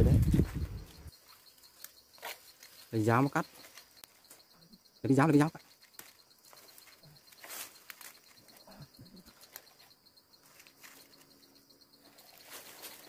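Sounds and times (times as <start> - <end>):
high insect chirr: 0.0 - 13.0
leafy branches rustling: 5.6 - 13.0.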